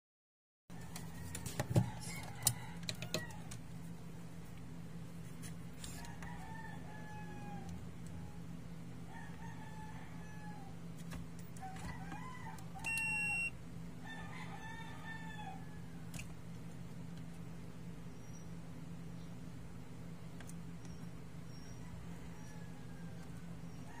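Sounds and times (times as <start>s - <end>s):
rooster crowing: 0.7s - 3.6s, 5.8s - 10.9s, 11.6s - 13.2s, 14.0s - 16.1s, 21.5s - 24.0s
multimeter beep: 12.8s - 13.6s.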